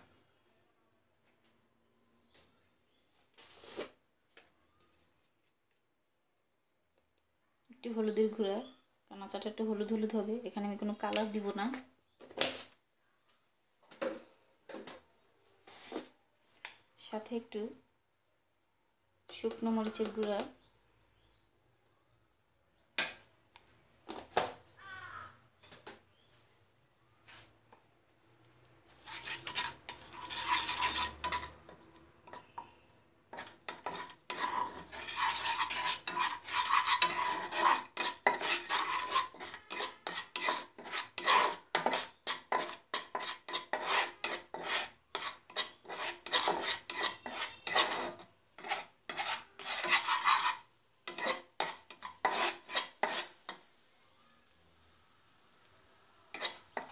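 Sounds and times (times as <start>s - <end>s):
spatula scraping a pan: 3.4s - 4.0s, 28.8s - 54.0s, 54.8s - 56.9s
paste frying in oil: 28.8s - 32.7s, 33.3s - 56.9s.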